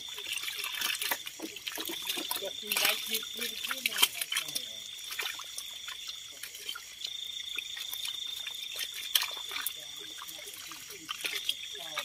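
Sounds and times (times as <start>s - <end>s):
high-pitched insect trill: 0.0s - 12.0s
sharp clicks and splashes: 0.0s - 12.0s
water trickling and splashing: 0.0s - 12.0s.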